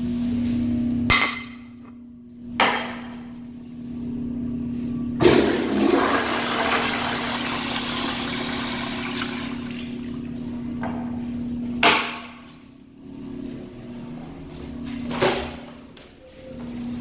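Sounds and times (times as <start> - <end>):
toilet flushing: 5.2 - 10.3.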